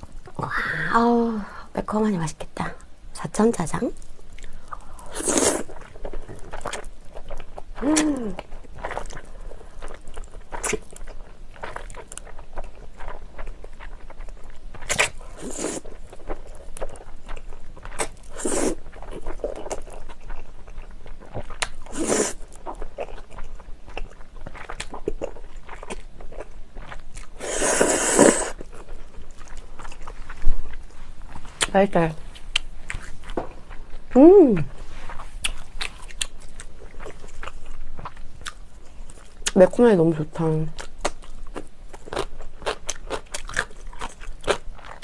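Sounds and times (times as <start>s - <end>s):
wet chewing: 4.0s - 39.7s, 40.5s - 45.0s
noodle slurping: 27.4s - 28.6s.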